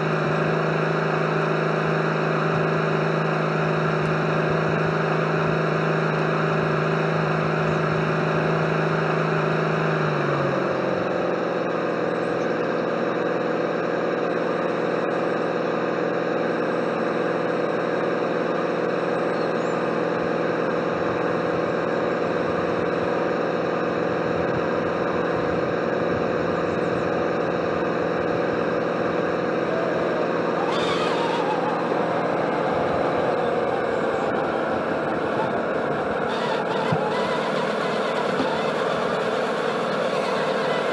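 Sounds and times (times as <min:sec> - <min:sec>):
model boat mechanical hum: 0:17.5 - 0:40.9.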